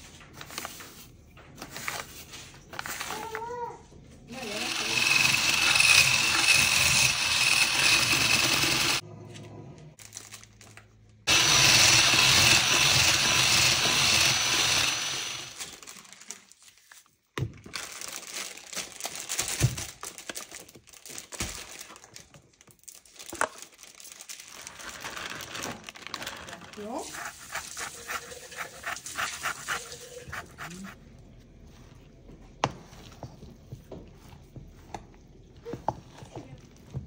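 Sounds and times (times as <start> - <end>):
electric hand mixer running: 4.3 - 9.0, 11.3 - 15.6
packaging crinkling: 10.0 - 11.2, 15.6 - 27.0.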